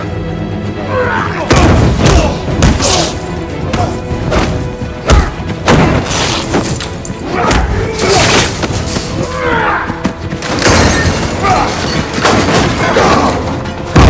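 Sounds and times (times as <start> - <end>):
action music score: 0.0 - 14.0
punches and body impacts: 1.5 - 6.8.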